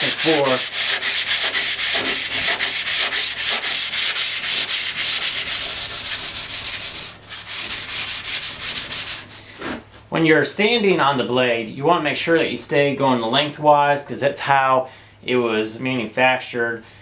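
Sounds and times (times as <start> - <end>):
sandpaper scrubbing on saw blade: 0.0 - 9.6.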